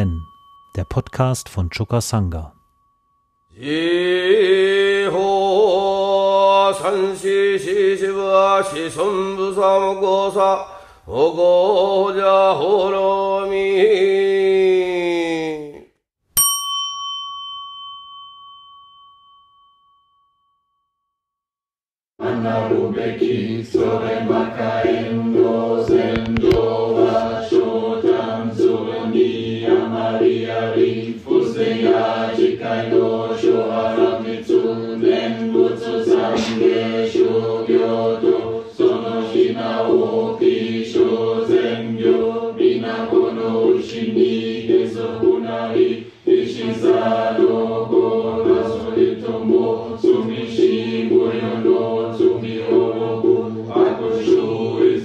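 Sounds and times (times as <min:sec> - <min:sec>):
group chanting in unison: 0:03.6 - 0:14.5, 0:22.2 - 0:55.0
sharp knock beat: 0:35.5 - 0:38.4.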